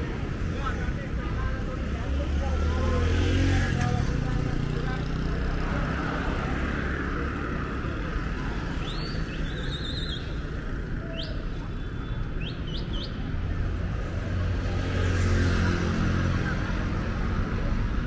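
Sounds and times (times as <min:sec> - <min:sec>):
road traffic rumble: 0:00.0 - 0:18.0
passing vehicle engine: 0:01.6 - 0:08.8.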